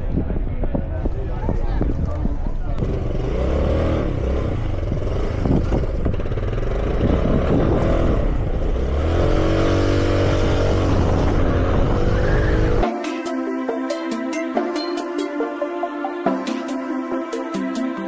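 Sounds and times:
vehicle engine running: 0:02.7 - 0:12.8.

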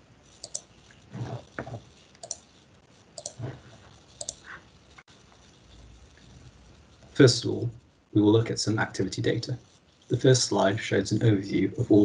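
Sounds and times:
computer mouse clicks: 0:00.4 - 0:02.6, 0:03.2 - 0:03.4, 0:04.0 - 0:04.5.

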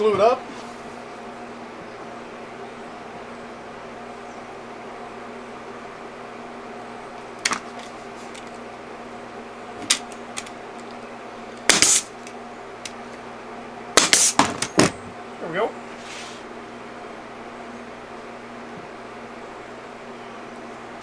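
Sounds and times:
fan hum: 0:00.0 - 0:21.0
pneumatic nailer firing: 0:11.6 - 0:12.3, 0:14.0 - 0:15.0.

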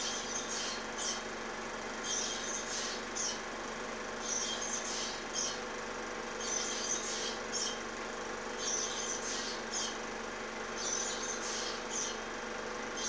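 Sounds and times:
osprey chirping calls: 0:00.0 - 0:01.2, 0:02.0 - 0:03.4, 0:04.2 - 0:05.6, 0:06.4 - 0:07.8, 0:08.6 - 0:10.0, 0:10.8 - 0:12.2
steady low hum: 0:00.0 - 0:13.0.

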